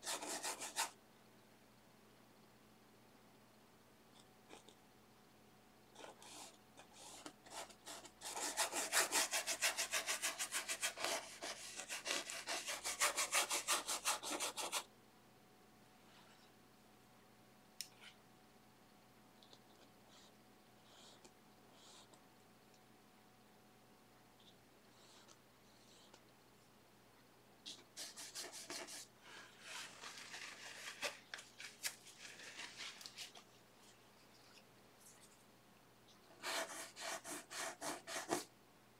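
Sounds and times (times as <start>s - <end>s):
paintbrush scrubbing canvas: 6.0s - 14.8s, 27.7s - 35.4s, 36.4s - 38.5s.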